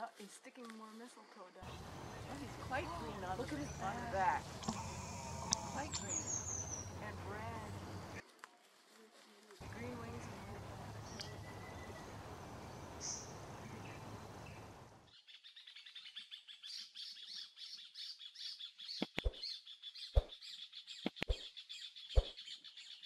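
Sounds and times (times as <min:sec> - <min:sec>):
background hiss: 0:00.1 - 0:15.0
small birds chirping: 0:00.8 - 0:08.3, 0:09.0 - 0:23.0.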